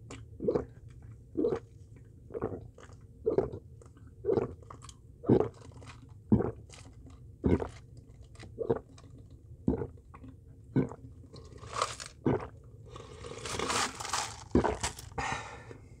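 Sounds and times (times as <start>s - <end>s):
gulping swallows: 2.3s - 3.6s, 4.2s - 5.7s
ice cubes crunching and rattling: 11.4s - 12.2s, 12.9s - 15.2s.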